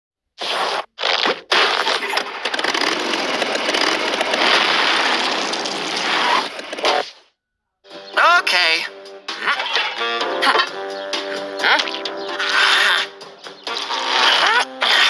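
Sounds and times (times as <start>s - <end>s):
dense crackling noise: 0.4s - 7.1s.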